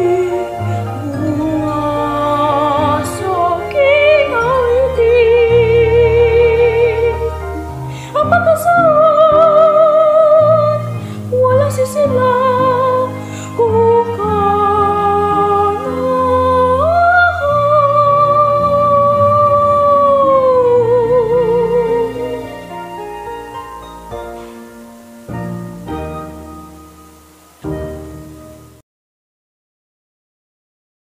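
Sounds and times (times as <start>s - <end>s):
operatic singing: 0.0s - 24.6s
low sustained accompaniment: 0.0s - 28.8s.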